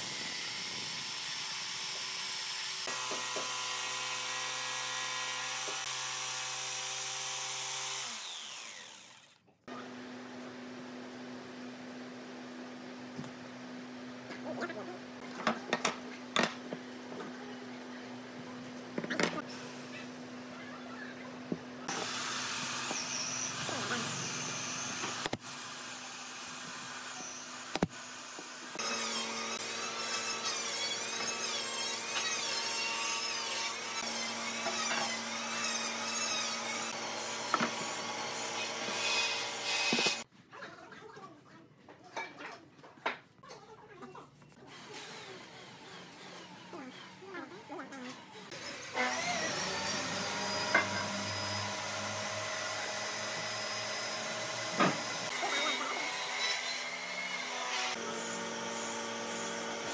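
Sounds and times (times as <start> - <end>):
small electric motor running: 0.0 - 10.1, 21.8 - 40.3, 44.7 - 59.9
power tool cutting wood: 0.0 - 11.6, 21.8 - 40.3, 44.7 - 59.9.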